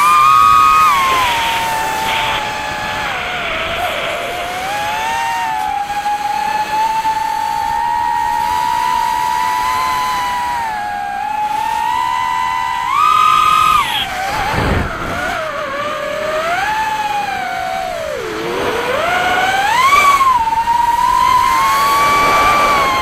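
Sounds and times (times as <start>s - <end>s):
drone motors whining: 0.0s - 23.0s
brief rushing noise: 0.2s - 5.6s.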